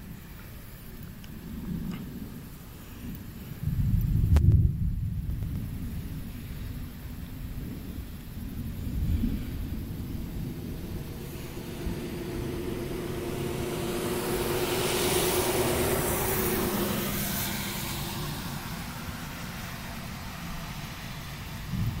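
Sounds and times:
steady low rumble: 0:00.0 - 0:22.0
passing vehicle: 0:07.2 - 0:22.0.

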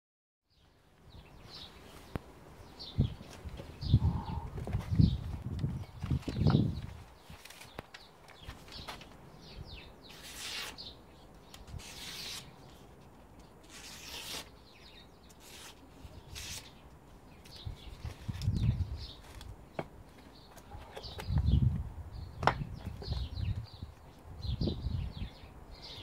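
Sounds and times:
knife slicing paper: 0:10.1 - 0:10.9, 0:11.7 - 0:12.5, 0:13.6 - 0:14.5, 0:15.3 - 0:16.8.

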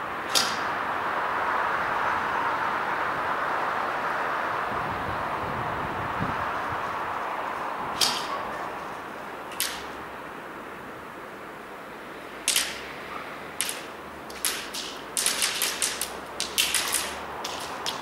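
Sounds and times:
airsoft guns firing: 0:13.6 - 0:18.0.

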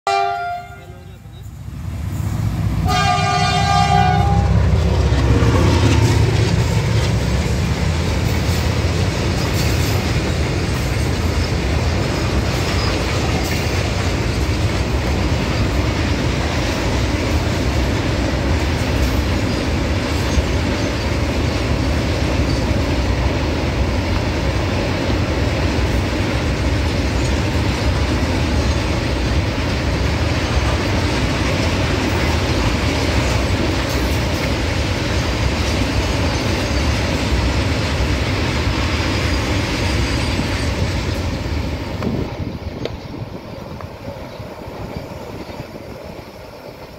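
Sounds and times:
train horn: 0:00.0 - 0:01.5, 0:02.8 - 0:04.8
diesel locomotive engine: 0:00.1 - 0:46.9
train wheels clattering on rails: 0:02.2 - 0:46.9.

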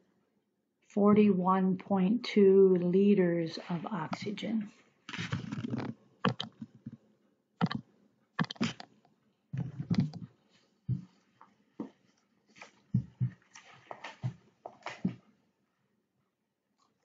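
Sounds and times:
mouse and keyboard clicking: 0:05.3 - 0:06.7, 0:07.6 - 0:07.8, 0:08.4 - 0:08.9, 0:09.9 - 0:10.2.

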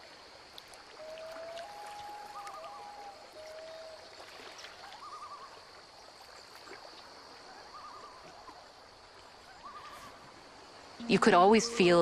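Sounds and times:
water drips: 0:00.0 - 0:07.2
pond water lapping: 0:00.0 - 0:12.0
short wavering call: 0:01.0 - 0:04.0.

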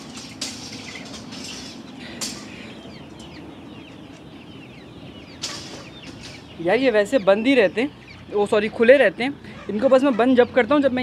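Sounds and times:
wire-mesh gate rattling: 0:00.0 - 0:03.4, 0:05.3 - 0:07.7
chicks peeping: 0:00.0 - 0:11.0.

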